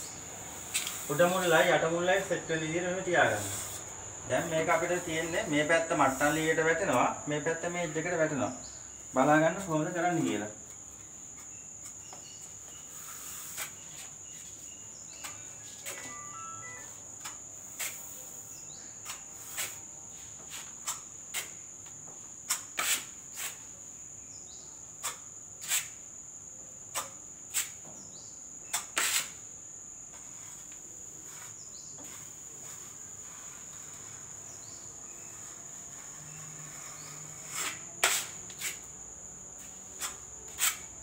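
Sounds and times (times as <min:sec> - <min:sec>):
high-pitched whine: 0:15.6 - 0:17.1.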